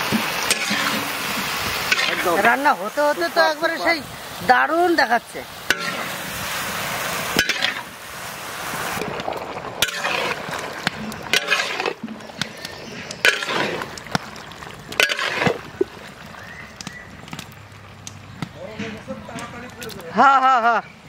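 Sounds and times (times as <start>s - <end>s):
vegetables sizzling: 0.0s - 19.9s
metal spatula scraping pan: 0.5s - 1.3s, 1.9s - 2.6s, 5.7s - 6.3s, 7.3s - 7.9s, 9.8s - 14.3s, 14.9s - 15.9s.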